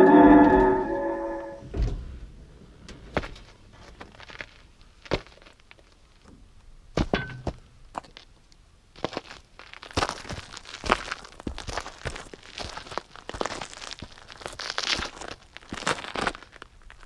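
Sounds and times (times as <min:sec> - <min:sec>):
short high squeak: 0:00.0 - 0:01.7
boots crunching on gravel: 0:03.8 - 0:05.9, 0:09.0 - 0:16.7.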